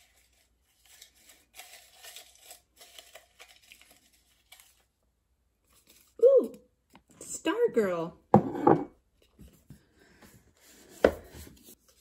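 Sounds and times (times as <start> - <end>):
paper cards rustling in a mug: 0.0 - 6.9.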